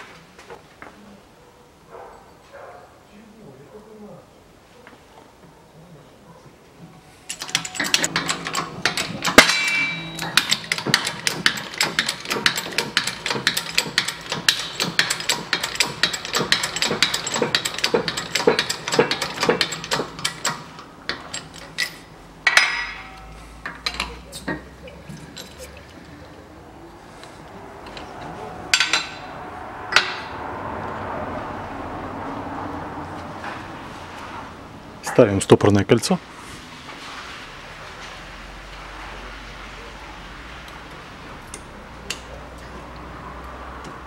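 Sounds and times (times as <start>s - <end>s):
loud metallic clunk: 7.3s - 24.7s, 28.7s - 30.4s
hydraulic press metallic clicks: 7.3s - 25.8s.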